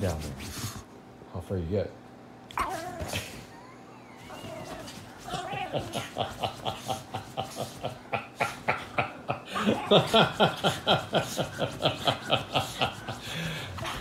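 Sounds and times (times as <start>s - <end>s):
man chuckling: 5.4s - 14.0s.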